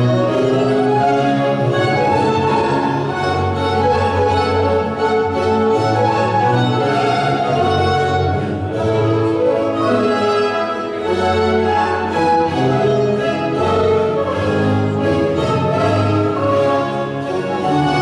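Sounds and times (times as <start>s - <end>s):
baroque string ensemble music: 0.0s - 18.0s.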